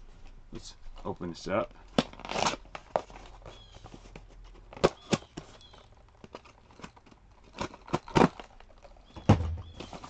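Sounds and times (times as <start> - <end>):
blade and box clicks: 4.8 - 9.1
box cutter slitting packing tape: 7.5 - 8.5.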